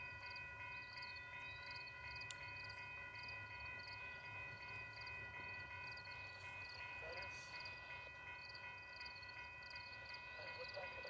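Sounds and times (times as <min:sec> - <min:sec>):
insects chirping: 0:00.1 - 0:10.9.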